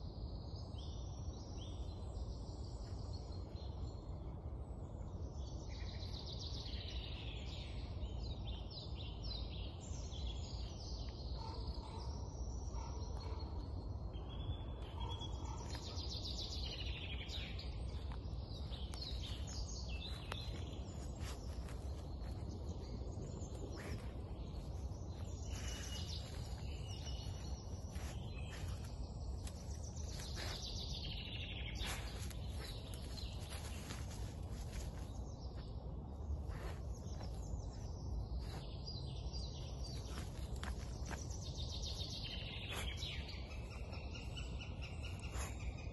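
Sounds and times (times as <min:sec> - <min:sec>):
songbirds singing: 0:00.0 - 0:45.9
steady low rumble: 0:11.6 - 0:45.9.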